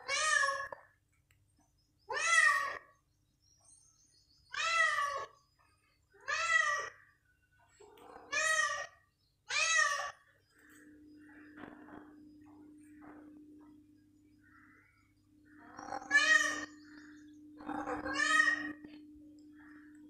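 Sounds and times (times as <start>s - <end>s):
cat meowing: 6.2s - 7.0s, 15.8s - 16.7s, 17.6s - 18.8s.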